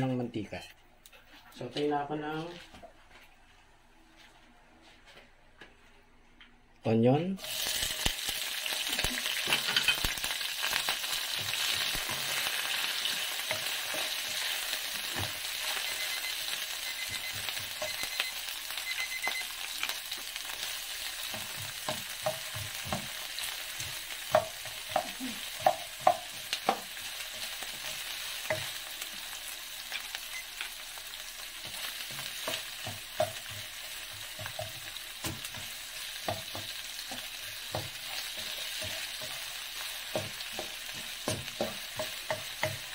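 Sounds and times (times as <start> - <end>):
onions sizzling in oil: 7.4 - 42.9
sharp knocks on a pan: 24.3 - 26.9.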